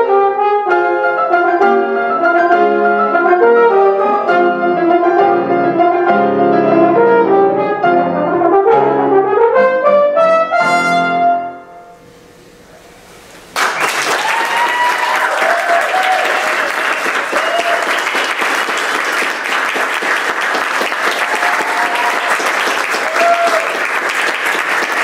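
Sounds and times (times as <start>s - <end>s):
horn and piano piece: 0.0s - 12.4s
audience applauding: 13.5s - 25.0s
short cheers: 13.6s - 18.3s, 21.0s - 24.0s.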